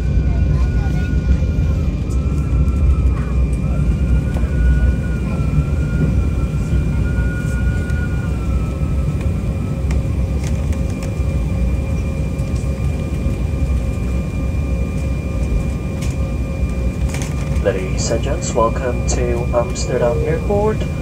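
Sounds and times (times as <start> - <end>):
jet engine whine at idle: 0.0 - 21.0
low cabin rumble: 0.0 - 21.0.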